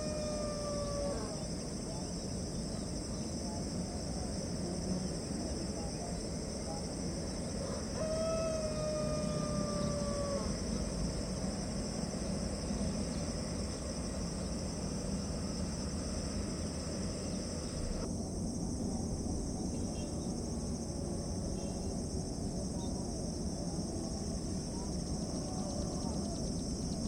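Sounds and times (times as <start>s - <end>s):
falling animal call: 0.0s - 1.4s, 7.6s - 10.8s
insects droning: 0.0s - 27.0s
jet engines rumbling: 8.7s - 18.5s.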